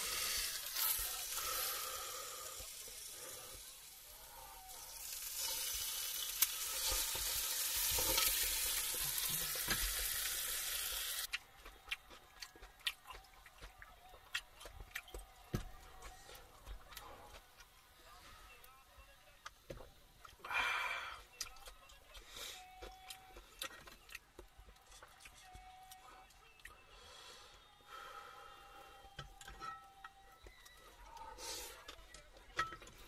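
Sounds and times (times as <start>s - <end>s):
sizzling hiss: 0.0s - 11.3s.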